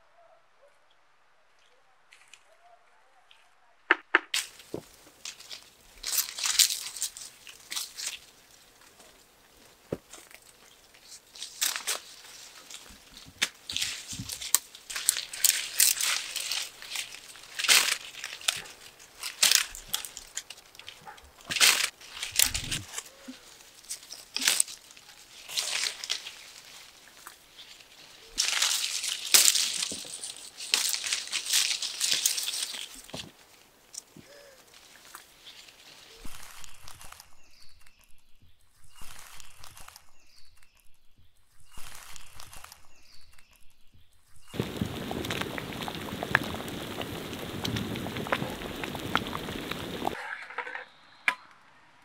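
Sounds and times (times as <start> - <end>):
branches snapping: 3.9 - 38.1, 38.8 - 40.8, 41.6 - 43.6, 44.6 - 50.3
leaves and branches rustling: 4.4 - 38.1, 44.3 - 50.5.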